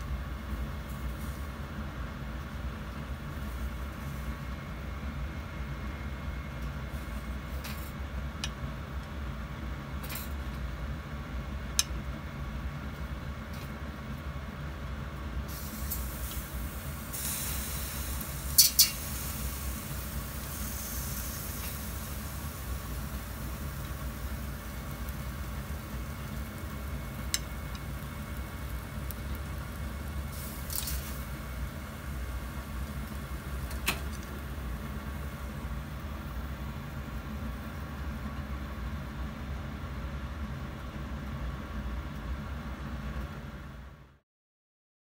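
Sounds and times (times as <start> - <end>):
gas stove burner rumbling: 0.0 - 44.2
mushrooms sizzling: 15.5 - 37.9.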